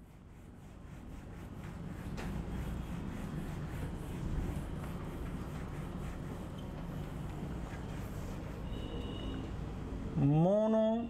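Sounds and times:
duster rubbing on whiteboard: 0.0s - 9.4s.

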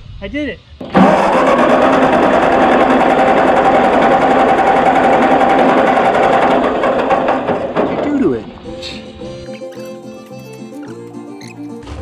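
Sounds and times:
engine starter cranking: 0.8s - 8.4s.

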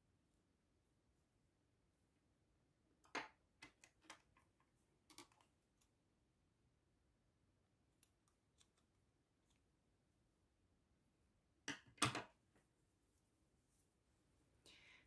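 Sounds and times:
small scissors snipping yarn: 8.0s - 9.6s.

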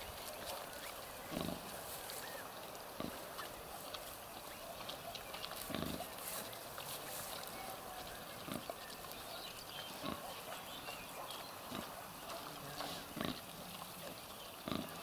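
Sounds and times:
sow grunting: 1.3s - 1.7s, 5.6s - 6.4s, 9.9s - 13.5s, 14.6s - 15.0s.

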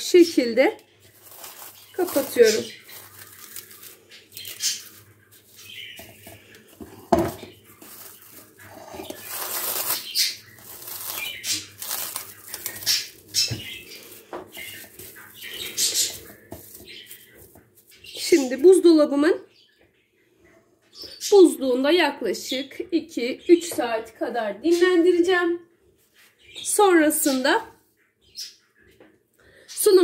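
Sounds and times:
cling film crinkling: 1.0s - 6.7s, 7.4s - 18.0s.

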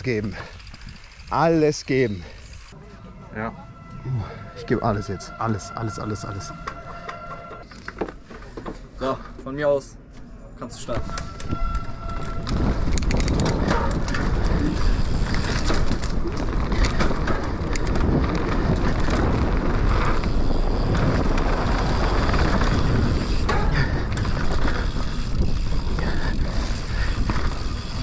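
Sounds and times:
bike and tyres rattling: 0.0s - 28.0s
wind buffeting microphone: 11.0s - 28.0s.

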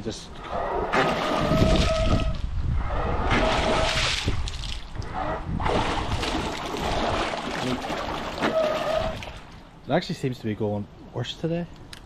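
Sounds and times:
propeller churning water: 0.0s - 9.8s.

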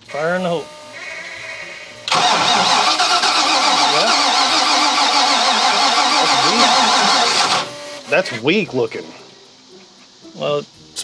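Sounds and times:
starter cranking engine: 1.9s - 8.5s.

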